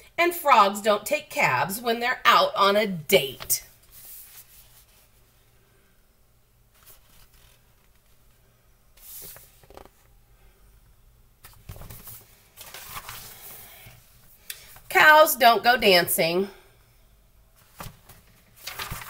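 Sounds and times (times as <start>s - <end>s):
book pages rustling: 3.4s - 5.2s, 6.7s - 8.4s, 9.0s - 10.1s, 11.4s - 13.8s, 17.6s - 19.0s.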